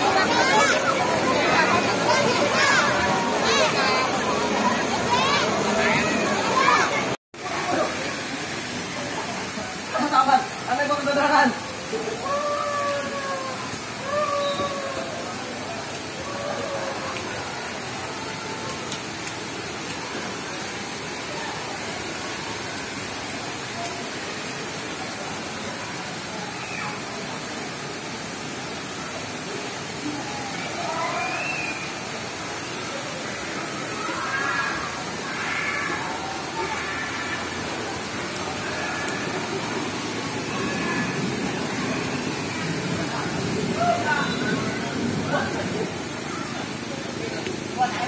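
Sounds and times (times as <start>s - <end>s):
falling splashing water: 0.0s - 48.0s
faint indistinct voices: 11.5s - 48.0s.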